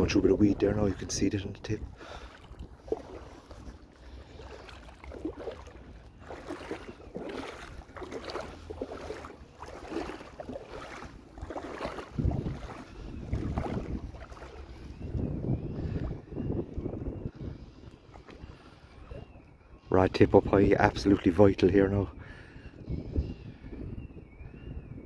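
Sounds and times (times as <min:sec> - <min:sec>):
seawater sloshing around legs: 0:00.0 - 0:19.6
wind buffeting microphone: 0:00.0 - 0:25.0.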